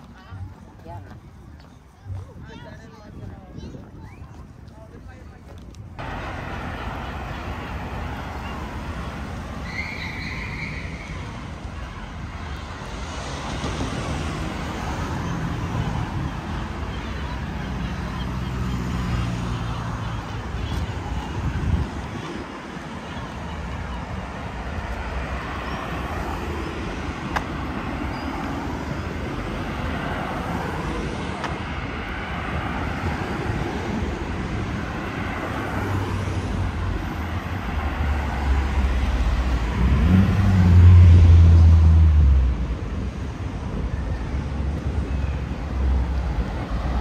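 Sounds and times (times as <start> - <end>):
hum of passing cars: 0.0 - 47.0
heavy vehicle engine drone: 6.0 - 10.7, 22.4 - 47.0.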